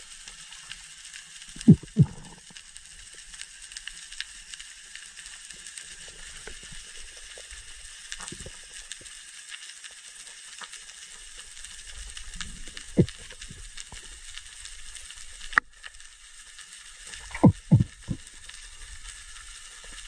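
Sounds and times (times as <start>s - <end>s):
soft underwater thuds: 1.6s - 2.2s, 17.3s - 18.2s.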